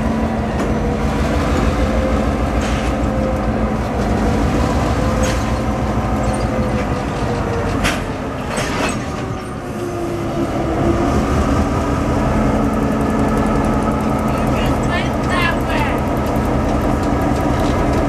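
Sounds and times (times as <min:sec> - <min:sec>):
diesel locomotive engine running: 0:00.0 - 0:18.0
train clicks: 0:12.6 - 0:18.0.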